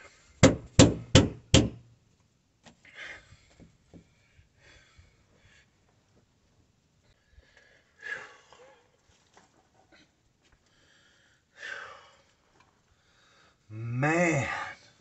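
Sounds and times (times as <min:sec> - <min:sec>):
hammer blows nailing: 0:00.4 - 0:01.8.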